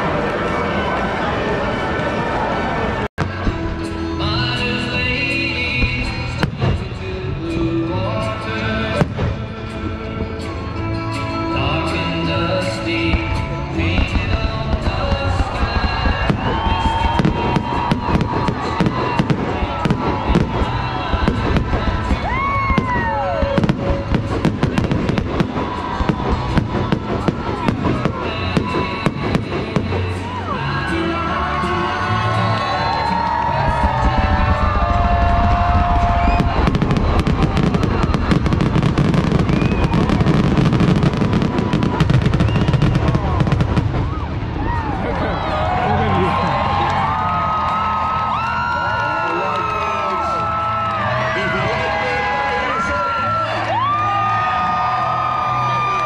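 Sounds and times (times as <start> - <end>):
fireworks bursting: 3.2 - 7.6, 8.8 - 9.8, 12.9 - 30.4, 33.6 - 45.0.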